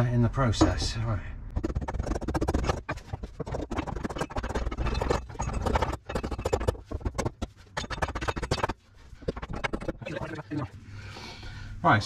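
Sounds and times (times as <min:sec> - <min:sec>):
metal scraping and clattering: 0:01.6 - 0:10.6.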